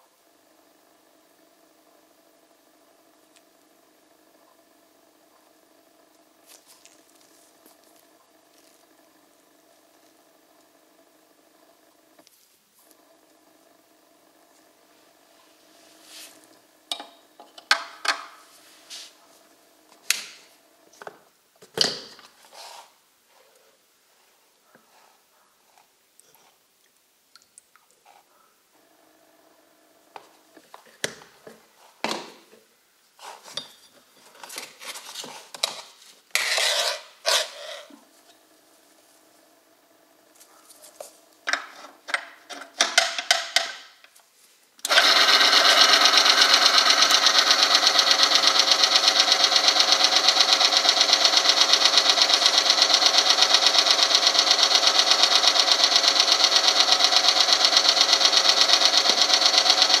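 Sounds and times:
clicks and knocks of parts fitted: 41.5 - 44.2
electric motor whirring: 44.9 - 60.0.

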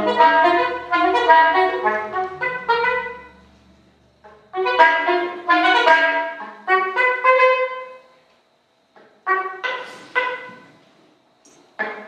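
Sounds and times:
soprano saxophone playing: 0.0 - 3.6, 4.5 - 8.0.

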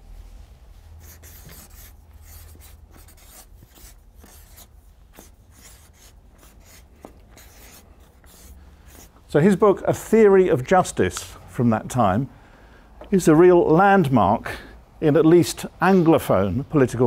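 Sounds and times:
marker pen scratching on paper: 1.0 - 9.2.

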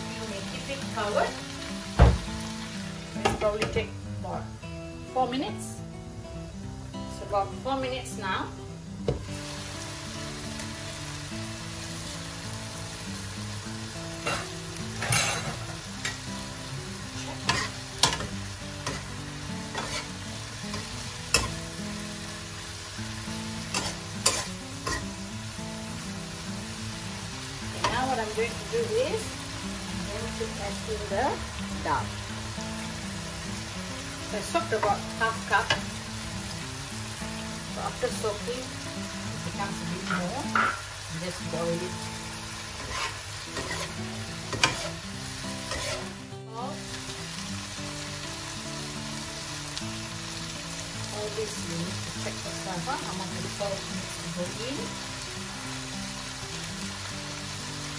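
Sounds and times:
cabbage sizzling in a wok: 0.0 - 57.9
metal spatula scraping a wok: 19.7 - 20.1, 42.8 - 45.0, 45.6 - 46.2.

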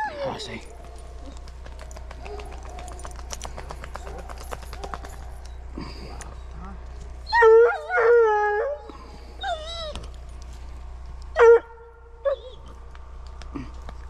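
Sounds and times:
dog yelping: 0.0 - 1.5, 2.2 - 3.2, 3.9 - 5.6, 7.3 - 8.8, 9.4 - 10.0, 11.4 - 12.7
dog howling: 0.0 - 3.1, 7.3 - 8.8, 12.2 - 12.7.

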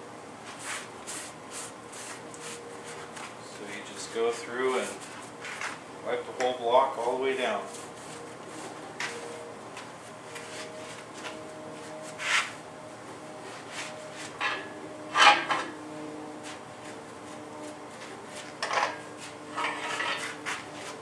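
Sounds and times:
paper towel rubbing on engine: 0.5 - 3.4, 4.5 - 5.7, 7.5 - 9.5, 10.4 - 12.6.

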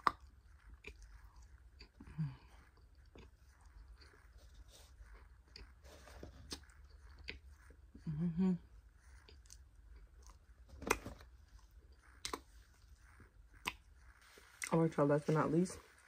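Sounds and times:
soft chewing with crunches: 0.0 - 16.0
person humming: 8.0 - 8.7.

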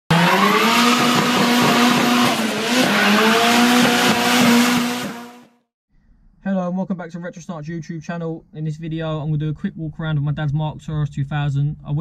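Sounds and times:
car engine at high revs: 0.1 - 5.6.

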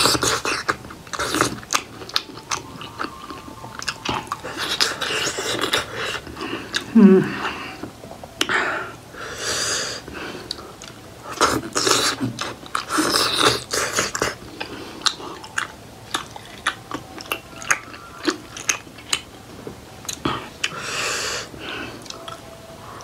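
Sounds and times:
wet squishy chewing: 0.0 - 6.9, 10.5 - 19.3.

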